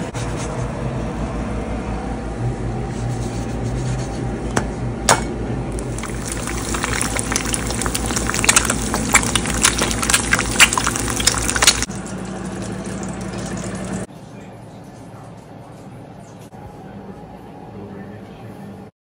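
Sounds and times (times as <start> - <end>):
eggs sizzling in hot oil: 5.7 - 14.1
oil crackling and popping: 5.7 - 14.1.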